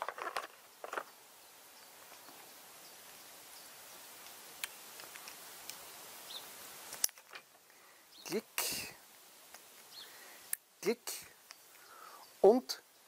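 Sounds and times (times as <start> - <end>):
distant bird chirps: 5.7 - 6.8, 7.6 - 8.6, 9.8 - 13.0.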